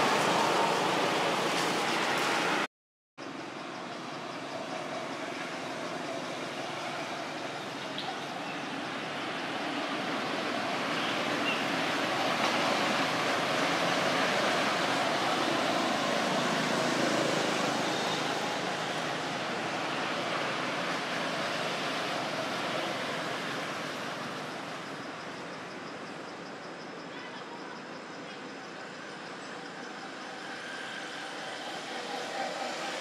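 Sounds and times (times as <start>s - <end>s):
outdoor rushing noise: 0.0s - 2.7s.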